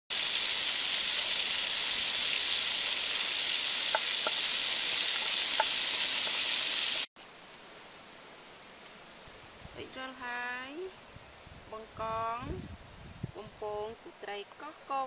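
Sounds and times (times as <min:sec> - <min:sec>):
shrimp sizzling in hot oil: 0:00.1 - 0:07.1
oil popping: 0:03.8 - 0:06.5.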